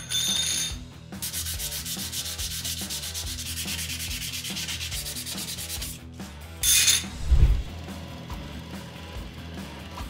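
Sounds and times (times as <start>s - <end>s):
sandpaper rubbing strokes: 1.2s - 6.0s.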